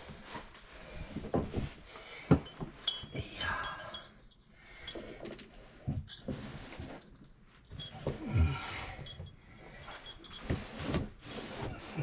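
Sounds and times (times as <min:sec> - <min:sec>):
metal tools clinking: 0:01.6 - 0:10.8.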